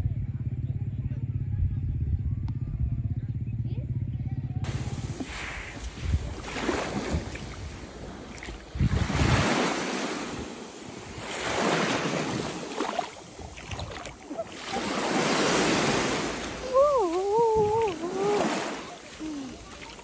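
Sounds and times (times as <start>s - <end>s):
wind rumble on microphone: 0.0s - 12.6s, 15.8s - 18.6s
small waves washing on sand: 4.7s - 20.0s.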